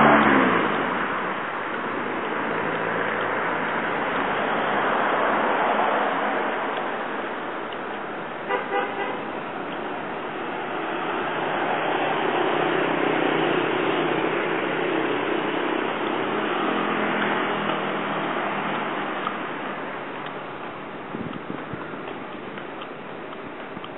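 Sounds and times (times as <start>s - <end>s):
street traffic noise: 0.0s - 23.9s
vehicle horn double toot: 8.5s - 9.3s.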